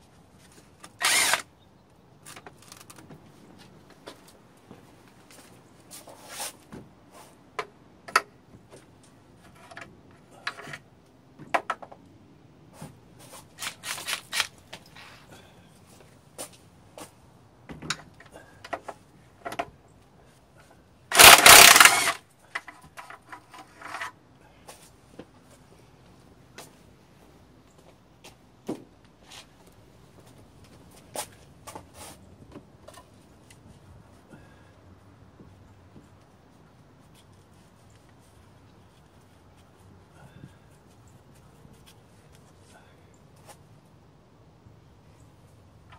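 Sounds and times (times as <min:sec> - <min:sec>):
metal parts and tools clinking: 0:21.1 - 0:22.2.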